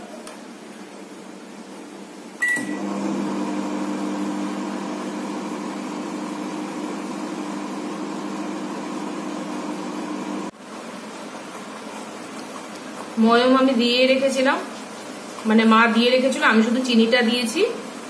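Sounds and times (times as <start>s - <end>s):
microwave oven humming: 2.3s - 10.5s
microwave oven beep: 2.4s - 4.1s.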